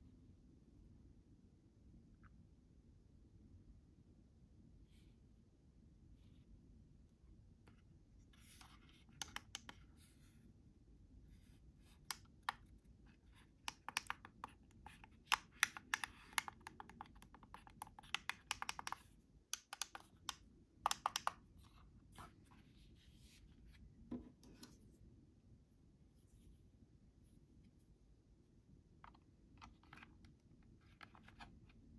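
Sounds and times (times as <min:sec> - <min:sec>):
plastic buttons clicking: 0:13.7 - 0:14.6, 0:15.3 - 0:19.0.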